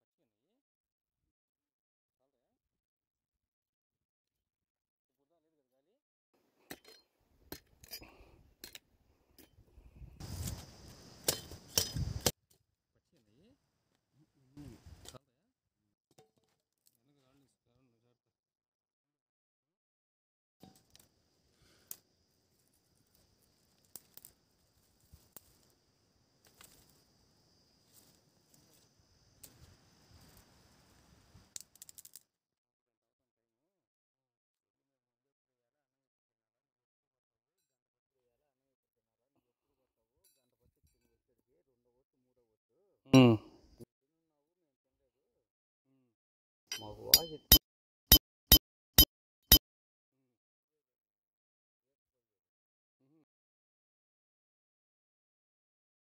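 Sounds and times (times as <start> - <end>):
twigs and leaves rustling: 10.2 - 12.3.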